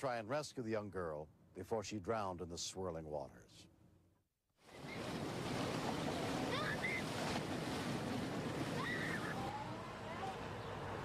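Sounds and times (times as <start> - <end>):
floodwater rushing: 4.6 - 11.0.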